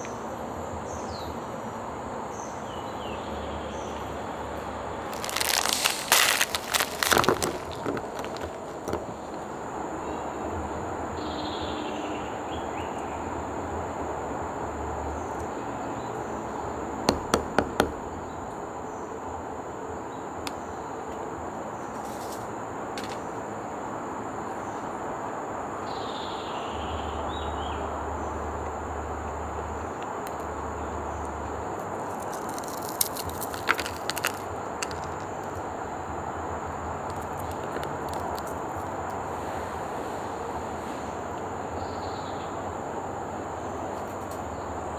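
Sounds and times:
sweet snapped apart by hand: 5.1s - 9.0s
background hiss: 23.3s - 44.9s.

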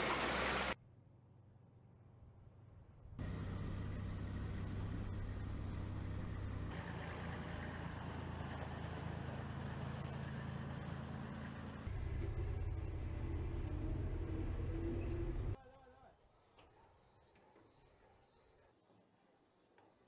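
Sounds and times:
diesel truck engines humming: 3.2s - 15.6s.

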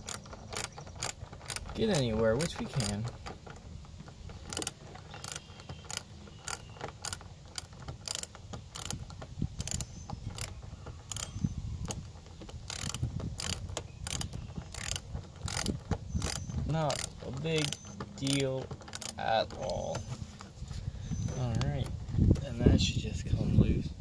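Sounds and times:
ratchet wrench clicking: 0.0s - 3.2s, 4.3s - 10.5s, 11.1s - 19.8s.

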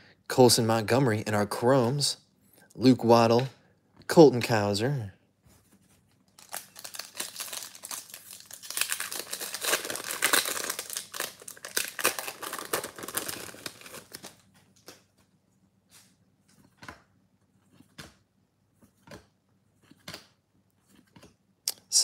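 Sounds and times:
foil wrapper crinkling and tearing: 6.3s - 14.5s.

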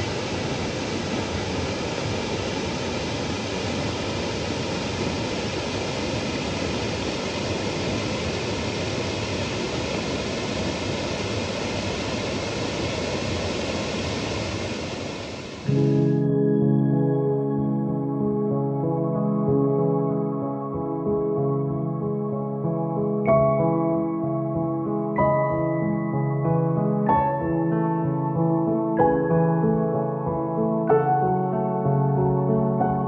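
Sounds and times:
water rushing: 0.0s - 15.7s.

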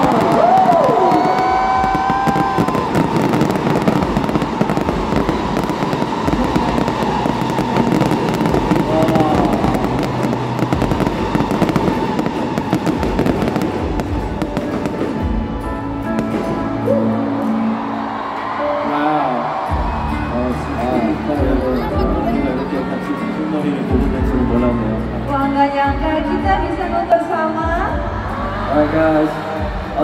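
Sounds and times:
fireworks crackling and popping: 0.0s - 16.8s.

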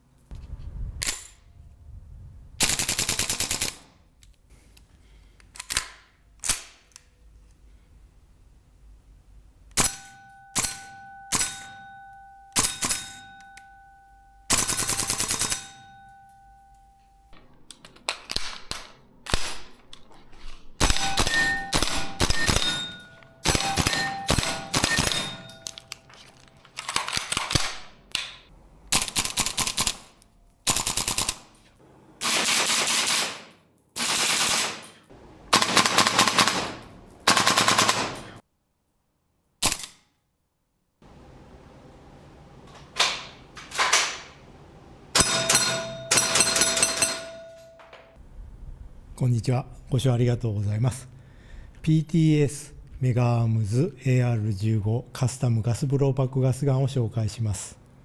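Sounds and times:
steel targets ringing: 9.8s - 17.3s, 20.9s - 26.0s, 45.1s - 48.2s
airsoft rifle firing bursts: 32.2s - 34.8s, 35.5s - 38.4s.

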